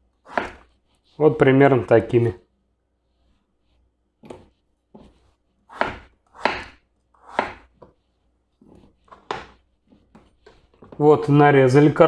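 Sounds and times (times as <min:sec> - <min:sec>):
knife chopping on wooden board: 0:00.3 - 0:00.7, 0:04.2 - 0:08.0, 0:08.6 - 0:11.0.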